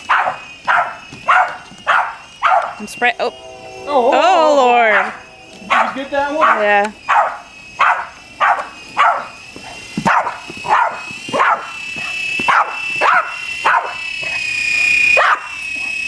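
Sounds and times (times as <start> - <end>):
dog barking: 0.0 - 2.8, 5.0 - 9.3, 10.1 - 14.4, 15.2 - 15.6
toy helicopter motor whine: 0.0 - 16.0.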